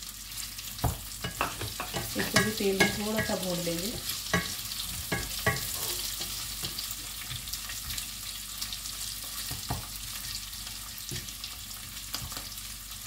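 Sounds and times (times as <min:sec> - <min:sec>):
potatoes sizzling in oil: 0:00.0 - 0:13.0
wooden spatula scraping pan: 0:01.3 - 0:06.8.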